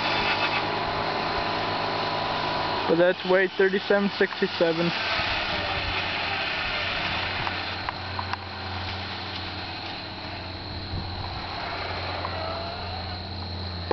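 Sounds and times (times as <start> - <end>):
distant tractor engine hum: 0.0 - 13.9.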